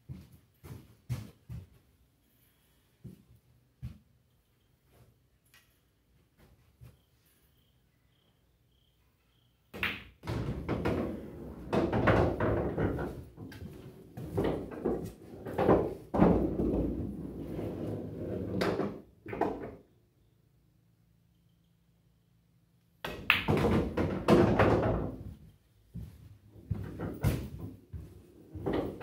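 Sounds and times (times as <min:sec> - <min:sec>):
pool ball rolling and clattering: 0:09.8 - 0:19.9, 0:23.1 - 0:25.2, 0:26.6 - 0:29.0.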